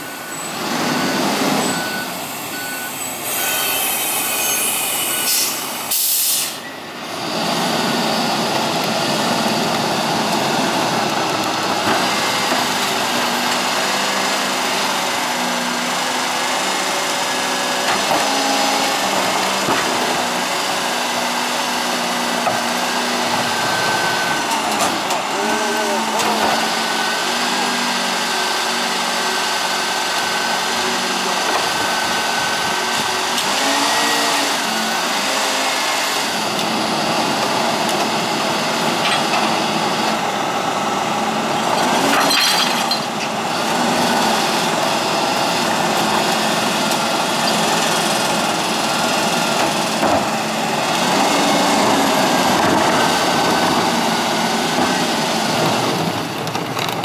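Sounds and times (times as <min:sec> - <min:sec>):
hydraulic whine: 0:00.0 - 0:08.5
garbage truck engine running: 0:06.8 - 0:57.0.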